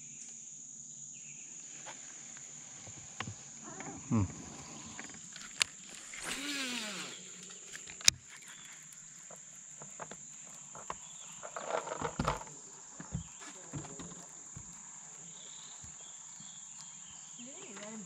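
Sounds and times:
high insect drone: 0:00.0 - 0:18.0
fishing reel spool whirring: 0:05.3 - 0:08.5.

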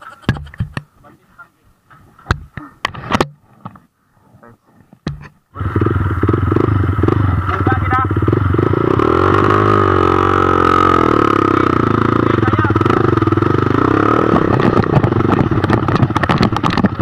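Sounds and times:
bike knocks and rattles: 0:05.0 - 0:05.4, 0:14.3 - 0:17.0
dirt bike engine revving: 0:05.5 - 0:17.0.

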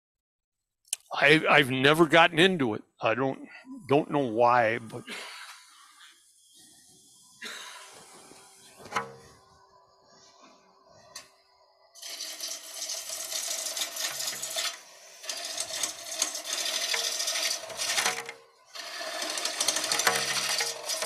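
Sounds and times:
gouge hissing on spinning wood: 0:12.0 - 0:18.1, 0:18.8 - 0:21.0
lathe humming: 0:12.0 - 0:21.0.

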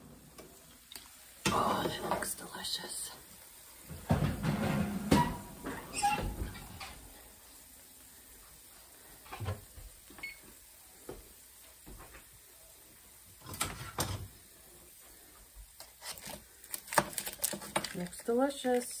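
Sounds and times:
soft kitchen knocks and clatters: 0:03.8 - 0:07.2, 0:09.2 - 0:10.3, 0:13.4 - 0:14.4.

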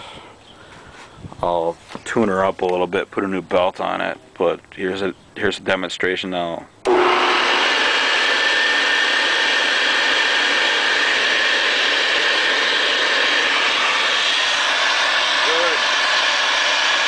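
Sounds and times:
vacuum cleaner motor running: 0:06.9 - 0:17.0.

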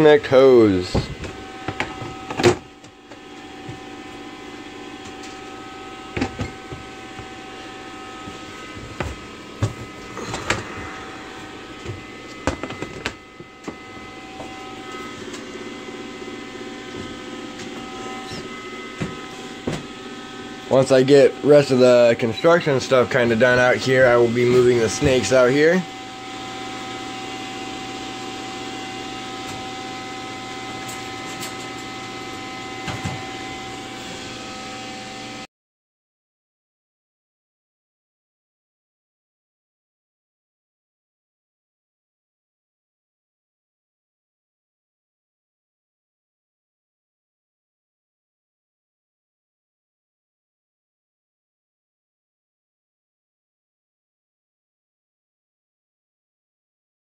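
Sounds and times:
steady motor hum: 0:00.0 - 0:35.4.

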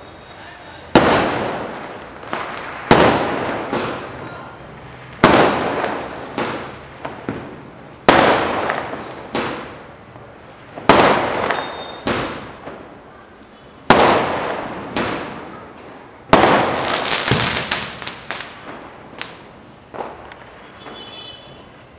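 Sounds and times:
firework crackling: 0:00.0 - 0:21.9
small firework pops: 0:00.9 - 0:04.2, 0:05.1 - 0:09.9, 0:10.8 - 0:21.8
firework shells bursting: 0:04.8 - 0:09.9, 0:10.8 - 0:12.9, 0:16.3 - 0:21.8.

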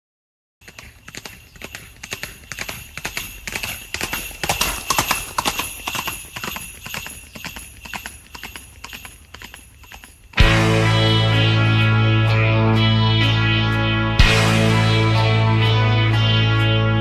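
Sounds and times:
horse hooves clip-clopping: 0:00.6 - 0:10.7
sleigh bells jingling: 0:00.6 - 0:17.0
guitar-backed music: 0:10.4 - 0:17.0.

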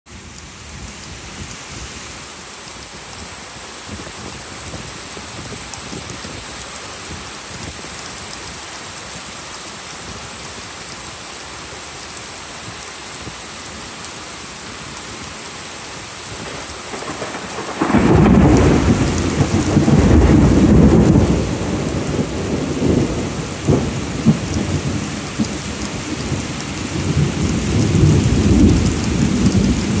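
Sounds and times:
heavy rain pouring: 0:00.1 - 0:30.0
sharp thunder cracks: 0:16.4 - 0:24.4
deep thunder rumbling: 0:16.4 - 0:30.0.

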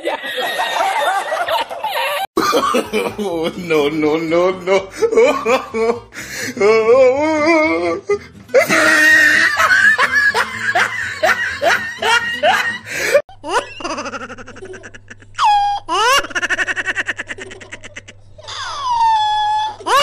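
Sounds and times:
laughter sound effect: 0:00.0 - 0:03.6, 0:04.7 - 0:06.1, 0:08.6 - 0:20.0
background music: 0:02.4 - 0:13.6.

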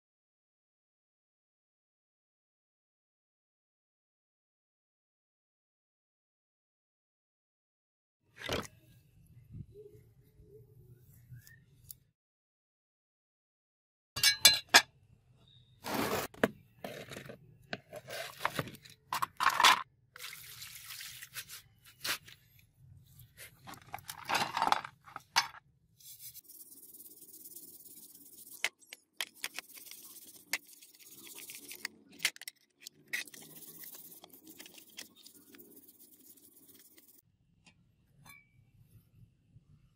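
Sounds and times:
iron blade clinking on tray: 0:14.2 - 0:14.8.

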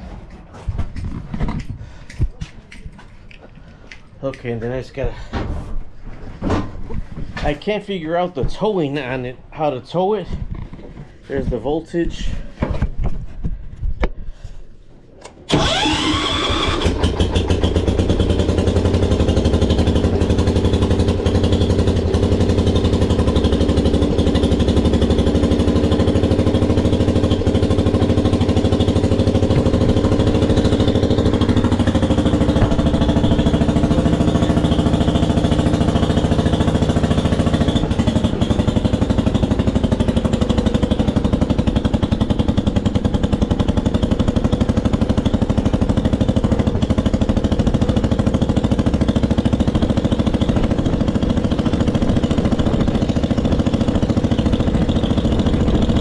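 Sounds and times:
starter whine: 0:15.2 - 0:56.0
tractor engine running: 0:15.2 - 0:56.0.

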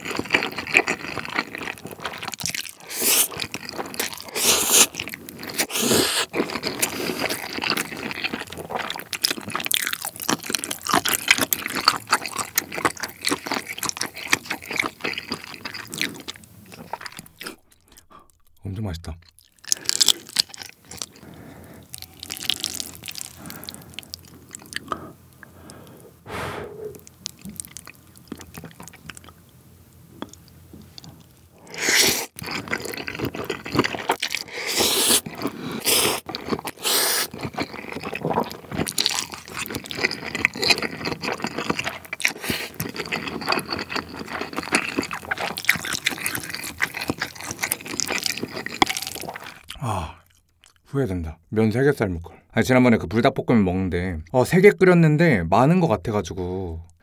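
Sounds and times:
wet chewing: 0:00.0 - 0:18.6, 0:19.2 - 0:29.5, 0:30.2 - 0:50.8
loud noodle slurps: 0:02.8 - 0:07.6, 0:26.3 - 0:27.1, 0:31.6 - 0:49.6.

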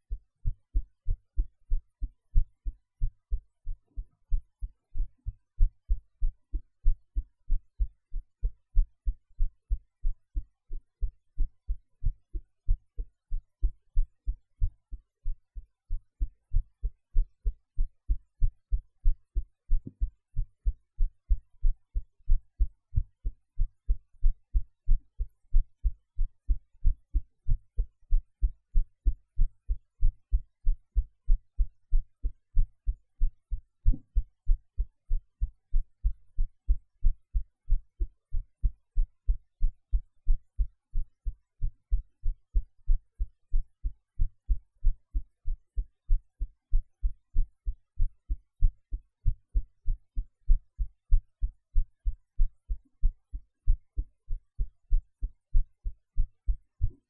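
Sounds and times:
human heartbeat: 0:00.0 - 0:57.0.

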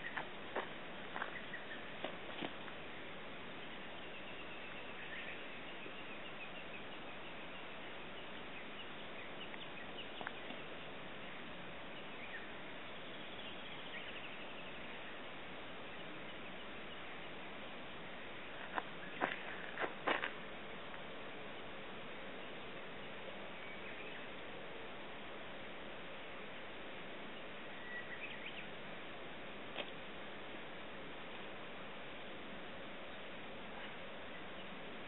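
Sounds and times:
outdoor background hiss: 0:00.0 - 0:35.0
bird chirps: 0:27.4 - 0:28.7.

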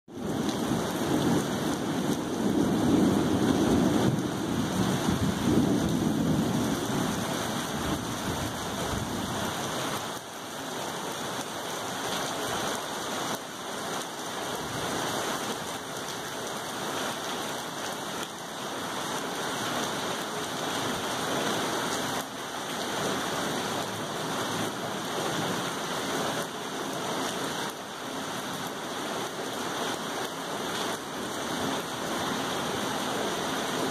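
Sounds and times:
steady rain falling: 0:00.1 - 0:33.9
low rumble of thunder: 0:00.3 - 0:09.5.

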